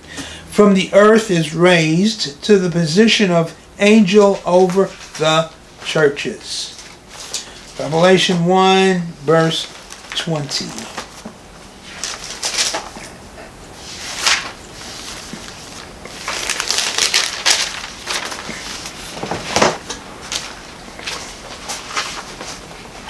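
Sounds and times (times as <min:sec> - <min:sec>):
book pages rustling: 0:09.5 - 0:13.2, 0:13.8 - 0:22.8.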